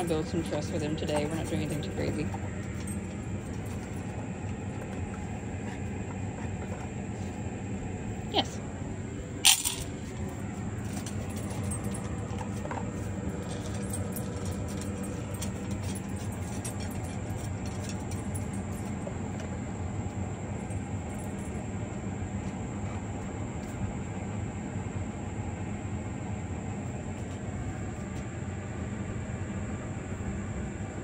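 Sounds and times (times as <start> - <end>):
dog eating from metal bowl: 0.0 - 7.4, 9.8 - 19.5
low hum: 0.0 - 31.0.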